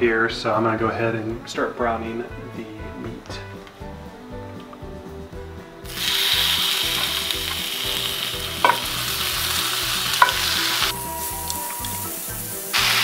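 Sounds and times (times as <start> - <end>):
meat sizzling in a skillet: 5.8 - 13.0
meat knocking into a pan: 8.6 - 9.1, 10.2 - 12.0.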